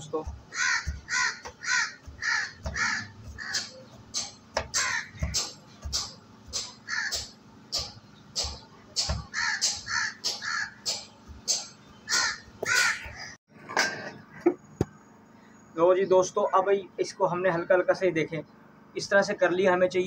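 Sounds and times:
wooden pestle thudding in mortar: 0.2 - 7.3
crows cawing: 0.5 - 7.4, 9.2 - 13.4.

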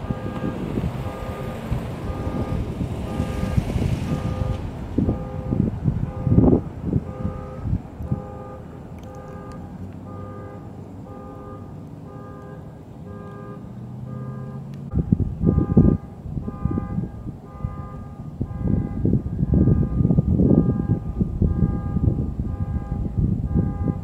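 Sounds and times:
low rumbling noise: 0.0 - 24.0
electronic beeping: 0.1 - 16.9.

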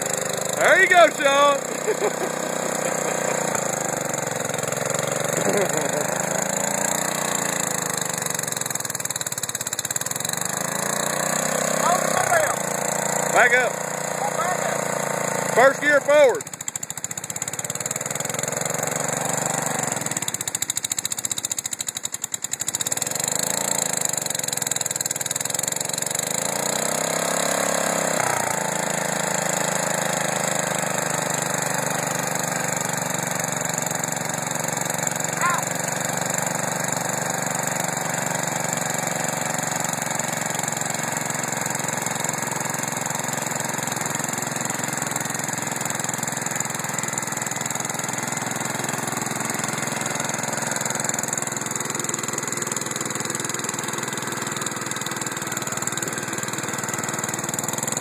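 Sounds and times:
tractor engine under load: 0.0 - 58.0.

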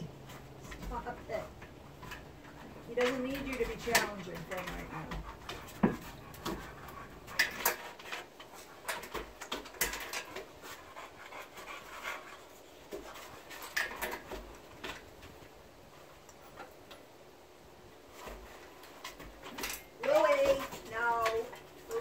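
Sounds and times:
small clicks and rustles: 0.1 - 17.2, 17.8 - 22.0
dog panting: 0.6 - 15.0.

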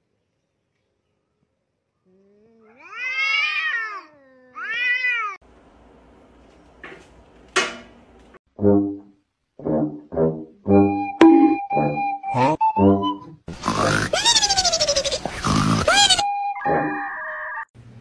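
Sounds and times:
cat yowling: 2.2 - 5.4.

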